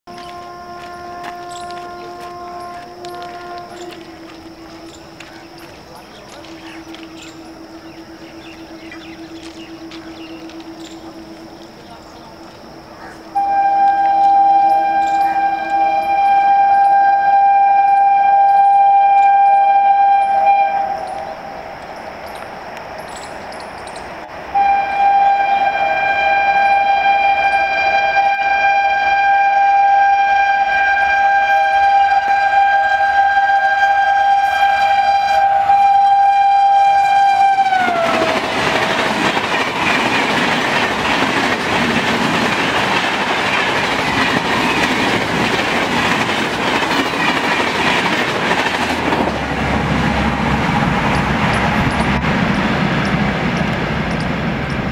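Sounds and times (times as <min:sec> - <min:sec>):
train horn blast: 0:00.1 - 0:21.6, 0:24.5 - 0:40.1
train coaches rushing past: 0:00.1 - 0:54.9.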